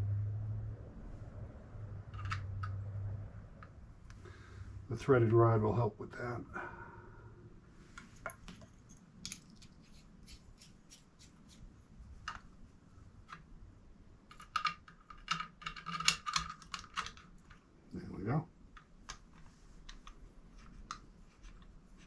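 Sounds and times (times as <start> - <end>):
metal rifle parts clicking: 2.1 - 2.8, 14.3 - 17.6.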